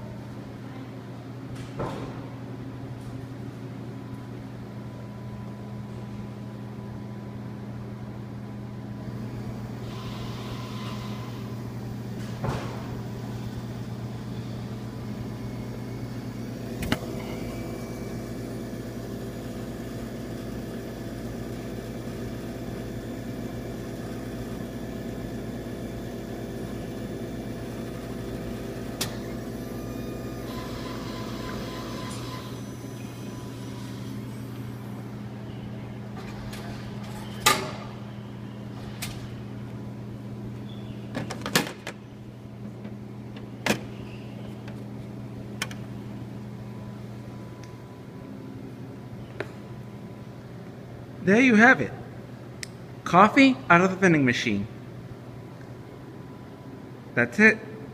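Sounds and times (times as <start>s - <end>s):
vending machine motor hum: 0.0s - 57.2s
vending machine hissing: 9.0s - 42.4s.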